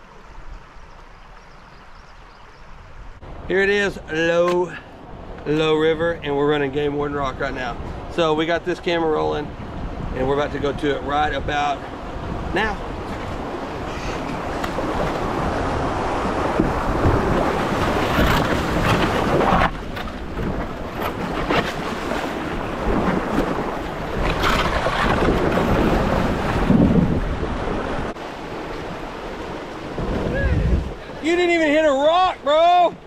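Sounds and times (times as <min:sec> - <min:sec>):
wind buffeting microphone: 0:05.0 - 0:31.4
whitewater rushing: 0:11.0 - 0:33.0
paddle splashes: 0:11.8 - 0:33.0.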